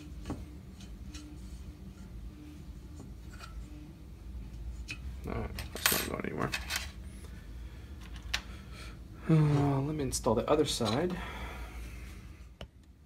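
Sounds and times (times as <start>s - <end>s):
metal parts clinking: 5.5s - 7.0s.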